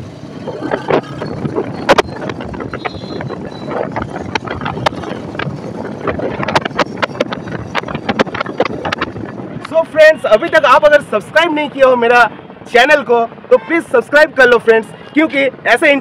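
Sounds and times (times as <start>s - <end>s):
motorcycle engine and tyre noise: 0.0s - 11.8s
wind buffeting microphone: 0.0s - 13.6s.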